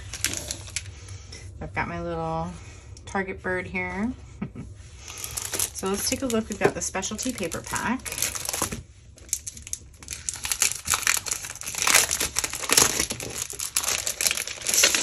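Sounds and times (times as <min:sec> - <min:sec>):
paper crinkling and rustling: 0:00.0 - 0:00.9, 0:05.1 - 0:15.0.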